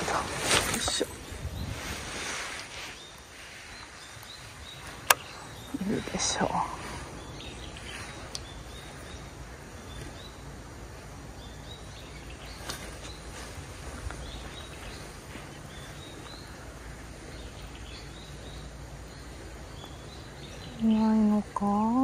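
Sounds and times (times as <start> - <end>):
low background noise: 0.0 - 22.0
small birds chirping: 0.0 - 22.0
faint clicks: 8.3 - 8.5.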